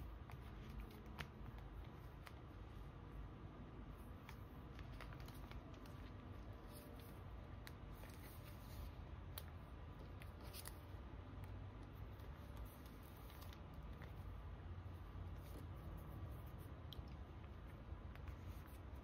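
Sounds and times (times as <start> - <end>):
cards ticking in sleeves: 0.0 - 2.9, 4.0 - 19.0
low steady rumble: 0.0 - 19.0.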